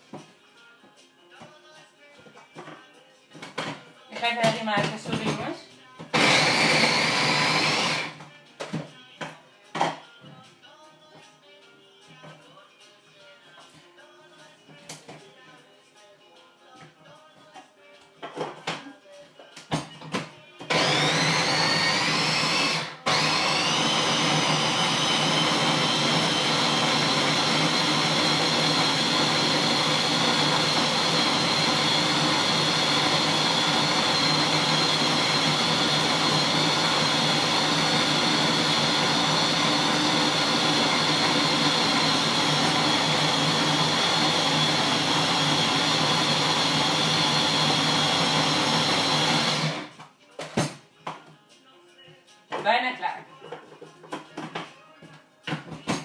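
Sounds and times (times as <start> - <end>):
food processor running: 6.1 - 8.2, 20.7 - 49.9.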